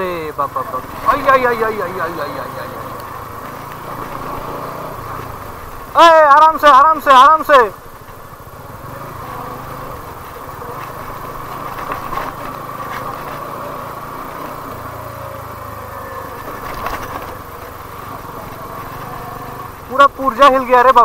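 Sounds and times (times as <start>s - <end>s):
motorcycle engine running: 0.0s - 21.0s
bike rattling on stones: 10.6s - 13.7s, 16.0s - 19.0s.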